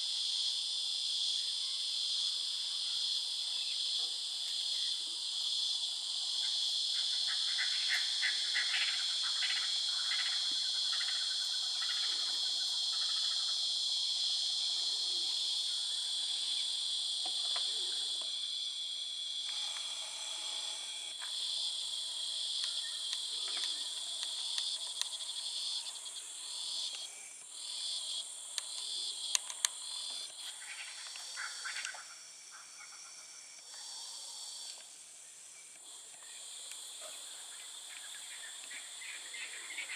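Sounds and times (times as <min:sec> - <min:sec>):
crickets and insects chirping: 0:00.0 - 0:39.9
sharp clicks: 0:28.6 - 0:29.8.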